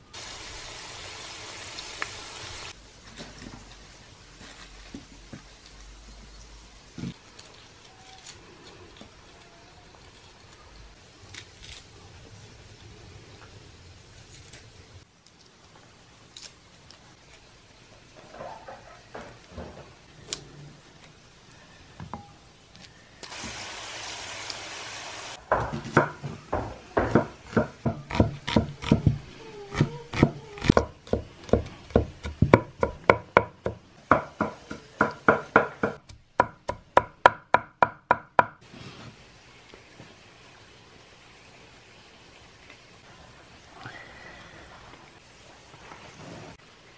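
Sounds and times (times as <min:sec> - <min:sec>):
faint handling sounds: 0:03.0 - 0:06.2
hiss: 0:23.2 - 0:25.4
cleaver chopping on wooden board: 0:25.6 - 0:29.2, 0:29.8 - 0:38.6.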